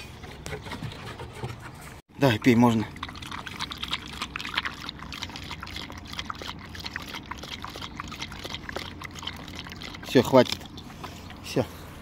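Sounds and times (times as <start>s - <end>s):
dog lapping water: 2.2s - 11.4s.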